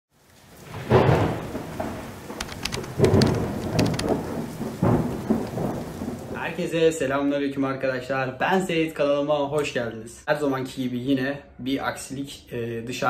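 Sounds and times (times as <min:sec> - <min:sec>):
rain hissing: 0:00.1 - 0:07.0
crackles: 0:00.2 - 0:06.7
deep rolls of thunder: 0:00.6 - 0:06.7.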